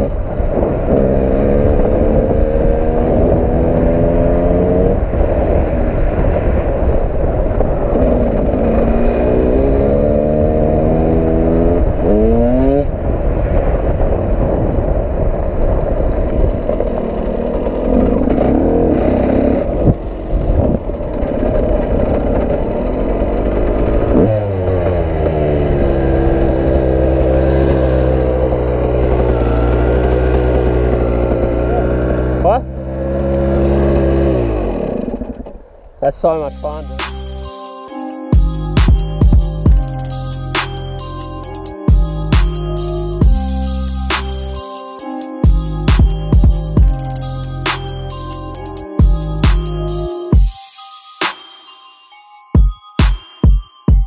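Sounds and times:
dirt bike engine revving: 0.0 - 5.6, 7.8 - 13.0, 16.0 - 35.5.

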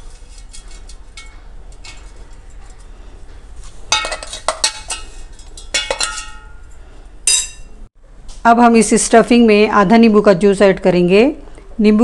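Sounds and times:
spoon scraping a jar: 0.0 - 2.9.

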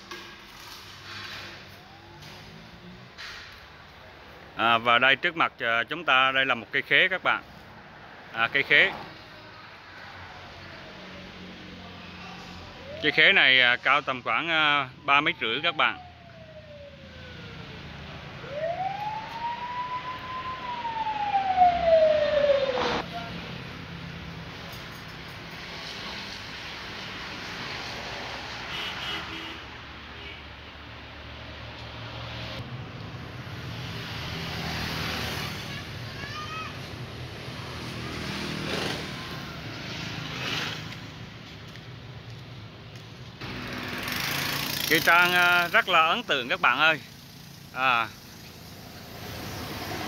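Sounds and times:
motorbikes passing: 0.4 - 30.1, 30.8 - 50.0
siren wailing: 1.6 - 2.8, 12.6 - 23.3, 38.1 - 39.9.

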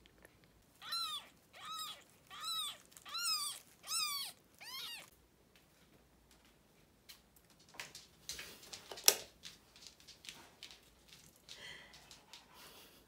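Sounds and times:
kitten meowing: 0.8 - 5.1.

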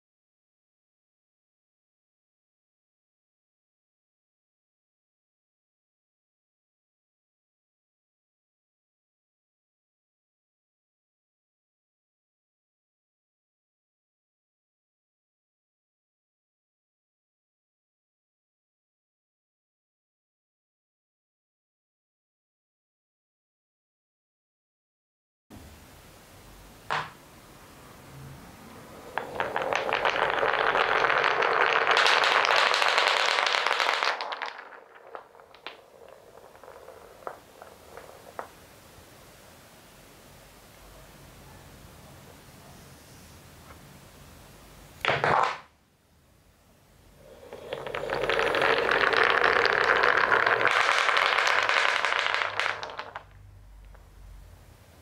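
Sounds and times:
wooden knock: 26.9 - 27.2
balls rattling through marble run: 29.1 - 38.8, 47.2 - 53.4.

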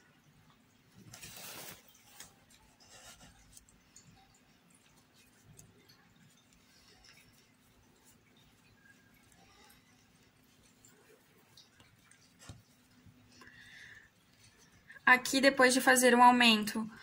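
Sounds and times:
yarn rustling with crochet hook: 1.0 - 13.4.

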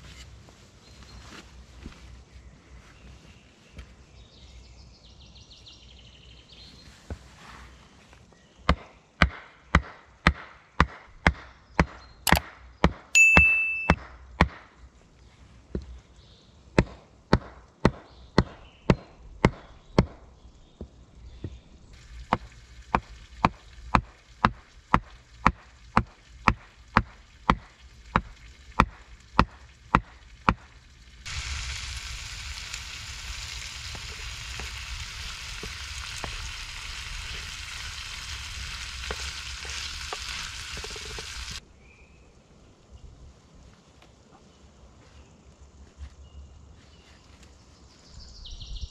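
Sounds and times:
hammering on wood: 8.7 - 13.1, 13.9 - 14.7, 16.8 - 20.2
steady hiss: 21.8 - 41.6.

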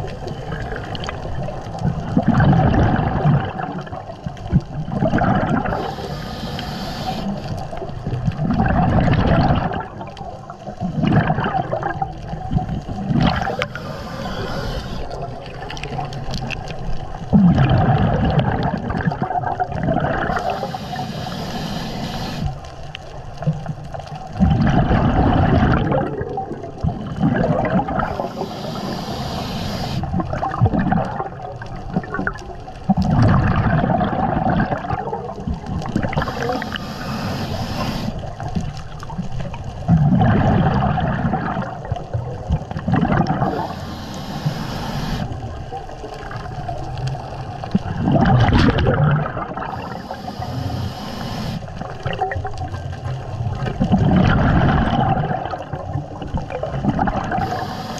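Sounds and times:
exhaled bubbles gurgling: 0.0 - 57.9
regulator hiss on inhale: 5.6 - 7.7, 13.4 - 15.5, 20.3 - 22.8, 28.0 - 30.2, 36.1 - 38.5, 43.4 - 45.4, 49.7 - 52.0, 57.3 - 57.9.

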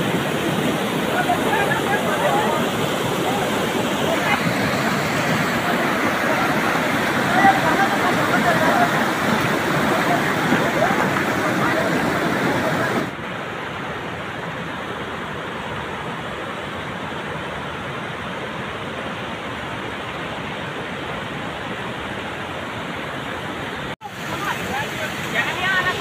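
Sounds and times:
flood water rushing over stones: 0.0 - 26.0.

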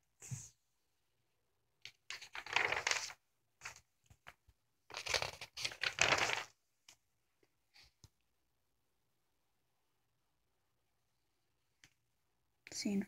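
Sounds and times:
paper crinkles and flicks: 1.8 - 6.6
magazine pages rustling: 1.9 - 6.6.

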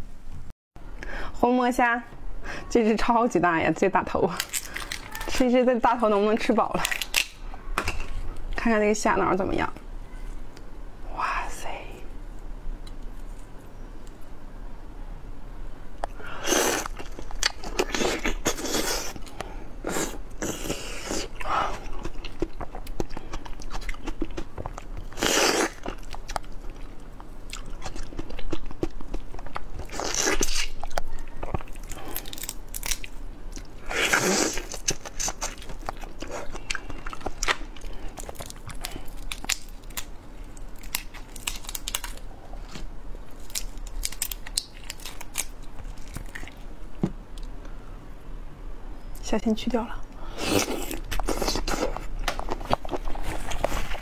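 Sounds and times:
crunching and chewing shrimp: 4.4 - 5.4, 6.8 - 7.4, 16.1 - 47.6, 50.3 - 54.0.

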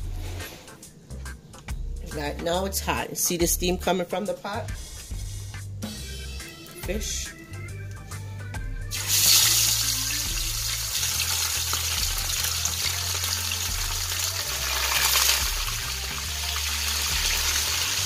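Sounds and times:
fish sizzling in hot oil: 8.9 - 18.0.

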